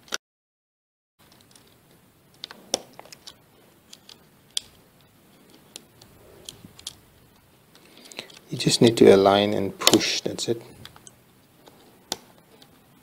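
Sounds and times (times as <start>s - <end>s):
cable connectors clicking: 1.2s - 8.6s, 10.7s - 12.7s.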